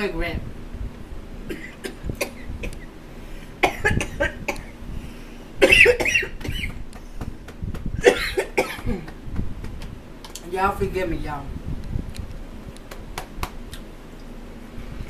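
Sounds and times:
woman coughing hard: 1.5s - 2.8s, 3.6s - 4.8s, 5.6s - 6.8s, 8.0s - 9.2s.

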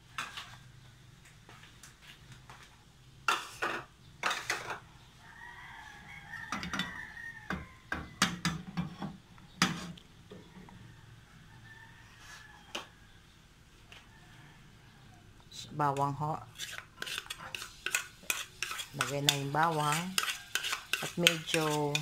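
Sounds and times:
metal pan and utensils knocking: 7.5s - 9.8s, 17.0s - 22.0s.

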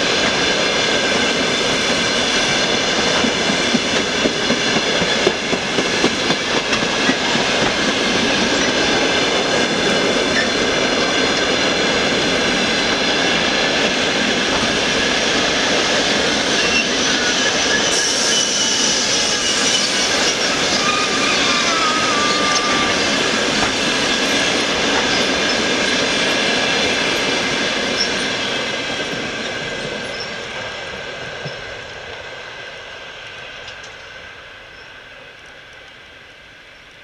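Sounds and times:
train wheels rumbling on rail: 0.0s - 37.0s
high wheel squealing: 16.5s - 25.8s.

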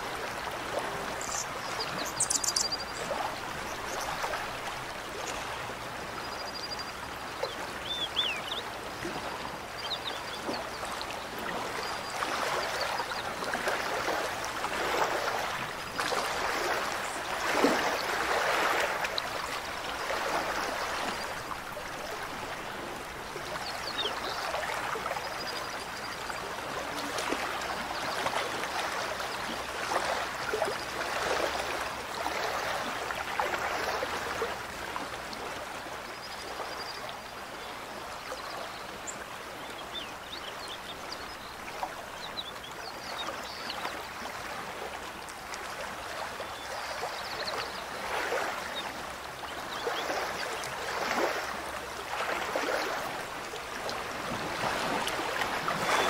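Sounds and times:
mountain stream rushing: 0.0s - 6.1s, 7.0s - 36.6s, 37.2s - 56.0s.

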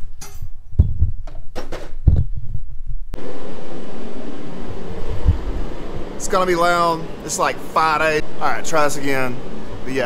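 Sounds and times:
shop heater blowing: 3.1s - 10.0s.

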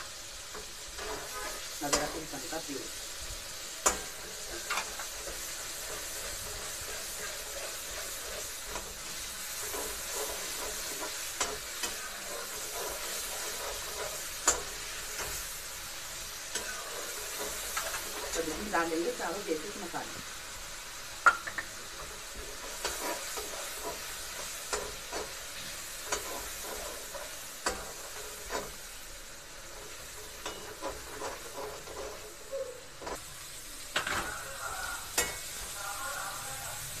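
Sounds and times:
masala sizzling in oil: 0.0s - 37.0s
metal spoon scraping pan: 0.5s - 2.7s, 3.8s - 15.5s, 16.1s - 19.2s, 21.5s - 28.9s, 29.7s - 33.2s
vegetables clattering into pan: 3.6s - 34.4s.

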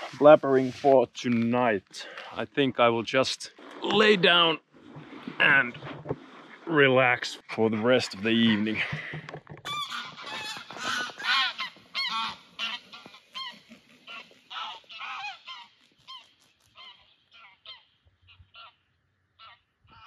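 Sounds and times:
geese honking: 7.7s - 9.0s, 9.7s - 18.8s.

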